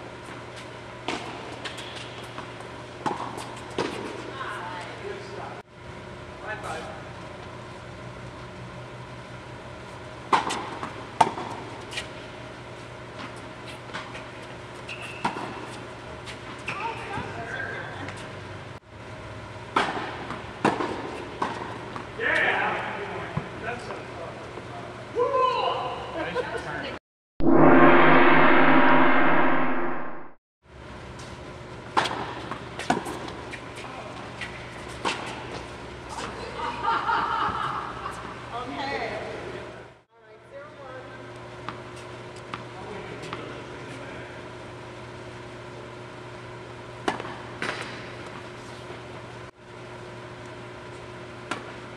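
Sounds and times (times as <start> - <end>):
tennis ball hit by racquets: 19.7 - 21.8
steady low hum: 27.4 - 31.9.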